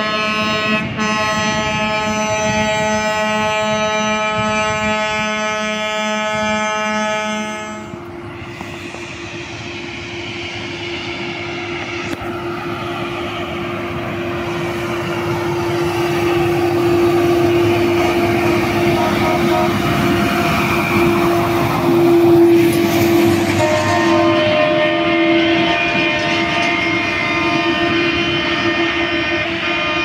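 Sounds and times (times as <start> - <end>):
horn sounding: 0.0 - 8.0, 14.1 - 30.0
rail machine rolling on rails: 0.0 - 30.0.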